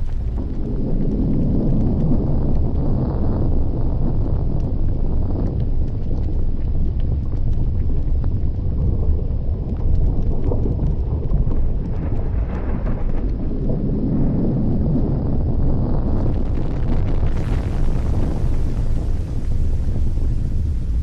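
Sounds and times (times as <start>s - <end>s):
crackles and pops: 0.0s - 21.0s
volcanic vent rumbling: 0.0s - 21.0s.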